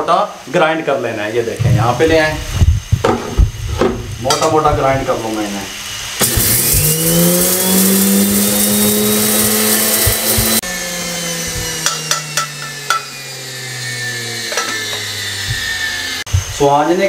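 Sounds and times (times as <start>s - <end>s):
electric spice grinder grinding: 5.3s - 17.0s.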